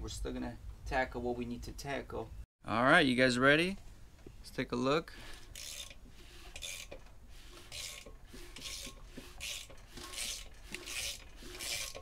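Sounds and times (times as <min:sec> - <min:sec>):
socket ratchet pawl rasping: 0:05.4 - 0:12.0.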